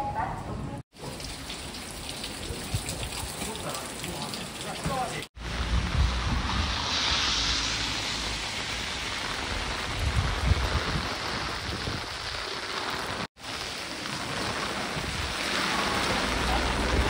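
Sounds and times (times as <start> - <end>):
heavy rain splashing: 0.9 - 17.0
low rumbling: 5.4 - 12.4.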